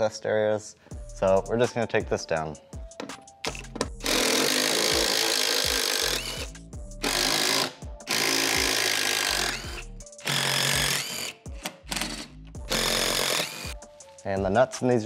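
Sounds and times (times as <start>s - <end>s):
impact wrench hammering: 7.0s - 13.7s.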